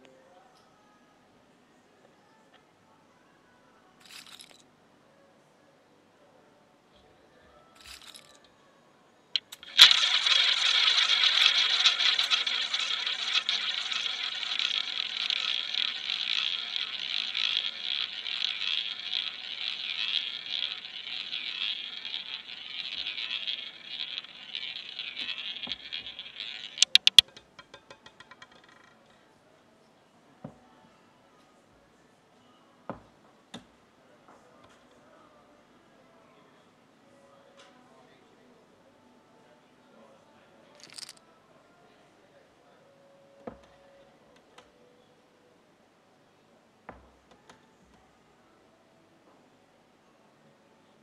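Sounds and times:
roulette ball launch click: 9.4 - 27.3
roulette ball bouncing into pocket: 9.4 - 29.0
roulette ball rolling whir: 9.4 - 29.0.

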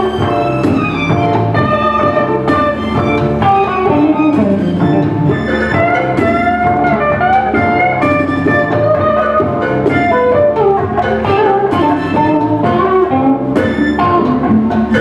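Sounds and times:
drums: 0.0 - 15.0
electric guitar: 0.0 - 15.0
saxophone: 0.0 - 15.0
trumpet: 0.0 - 15.0.

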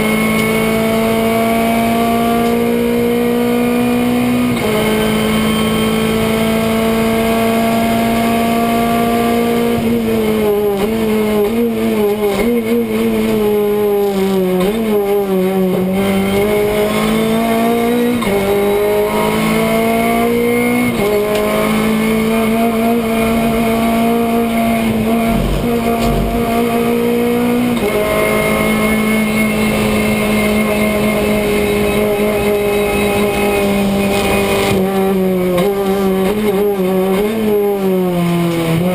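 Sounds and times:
race car engine running hard: 0.0 - 38.9.

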